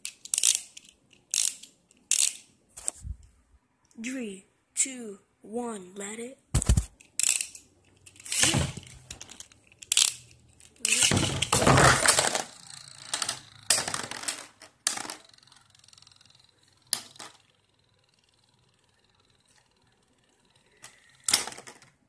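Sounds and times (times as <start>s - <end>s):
spinning tops clattering: 7.2s - 21.8s
faint spinning hum: 12.1s - 21.8s.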